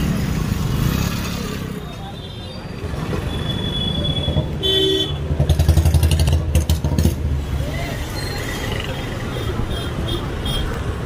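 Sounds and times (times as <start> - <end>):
motorcycle engine rumbling: 3.6 - 10.0.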